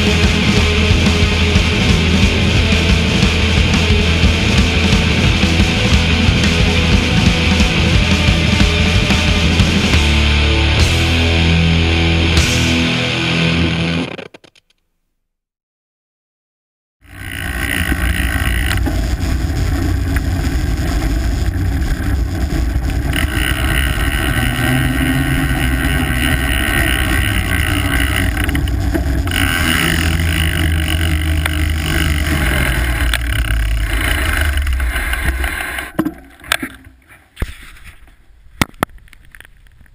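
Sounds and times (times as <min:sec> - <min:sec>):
tyres rolling on pavement: 0:17.0 - 0:37.1.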